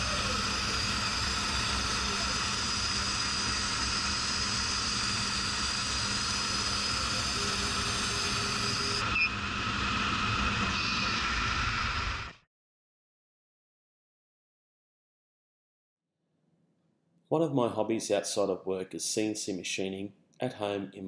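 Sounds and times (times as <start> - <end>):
laser cutter hiss and whine: 0.0 - 12.4.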